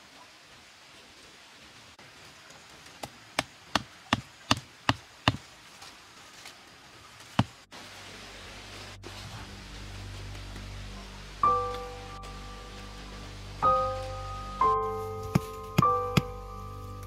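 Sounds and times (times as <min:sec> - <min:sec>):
sharp wooden knocks: 0:03.0 - 0:05.4.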